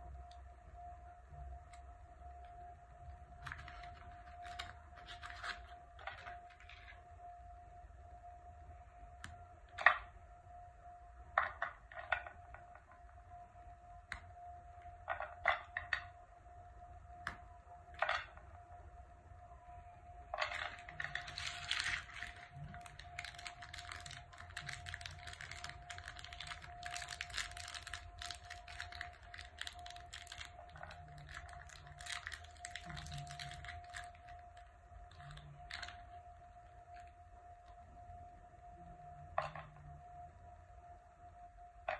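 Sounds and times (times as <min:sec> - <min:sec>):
faint steady hum: 0:00.0 - 0:41.9
wrappers crinkling: 0:03.4 - 0:06.9, 0:20.5 - 0:37.1.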